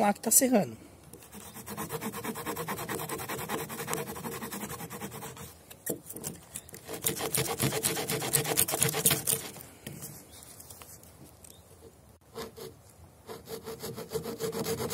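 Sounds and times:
small saw cutting wooden stick: 1.1s - 9.6s, 12.3s - 14.9s.

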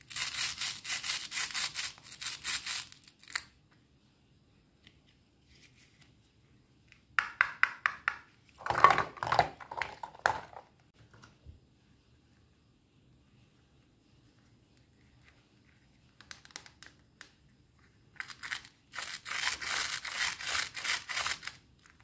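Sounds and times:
plastic toy crackling rasp: 0.0s - 3.4s, 18.2s - 21.6s.

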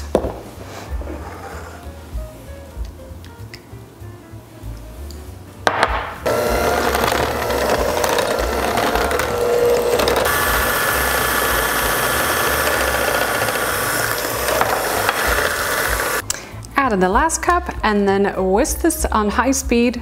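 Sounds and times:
electric hand mixer running: 6.2s - 16.2s.

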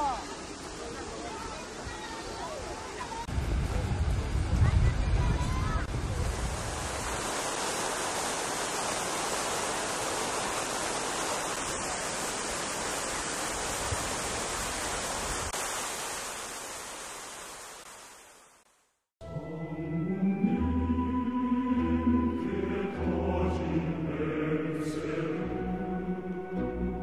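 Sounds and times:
fountain water splashing: 0.0s - 18.6s.

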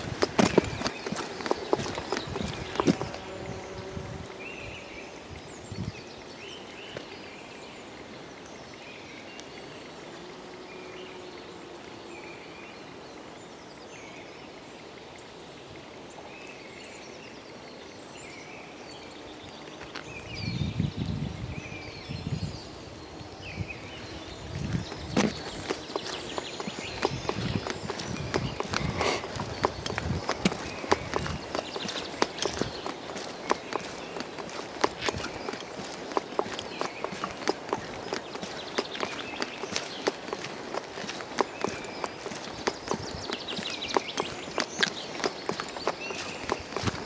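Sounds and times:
heavy footsteps on path: 0.0s - 4.3s, 24.0s - 47.0s
small birds chirping: 0.0s - 14.6s, 16.1s - 47.0s
outdoor forest hush: 0.0s - 47.0s.

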